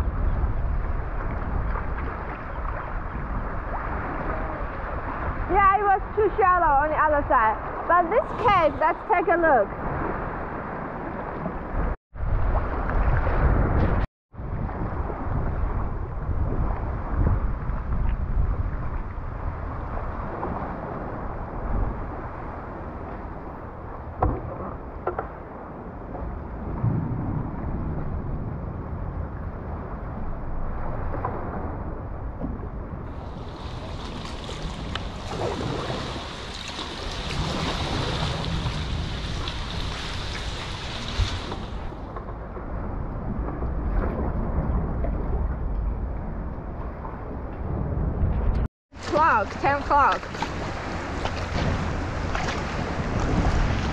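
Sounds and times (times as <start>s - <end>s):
kayak gliding through water: 0.0s - 53.9s
wind rumbling on microphone: 0.0s - 53.9s
paddle splashes: 0.3s - 5.6s, 30.7s - 45.3s, 48.9s - 53.9s.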